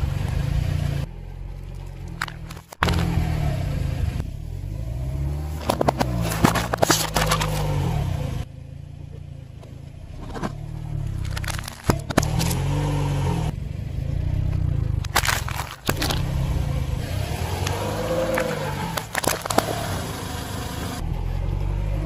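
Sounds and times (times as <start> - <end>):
car engine running: 0.0 - 22.0
tyre crushing cans: 5.6 - 7.7, 15.1 - 16.3.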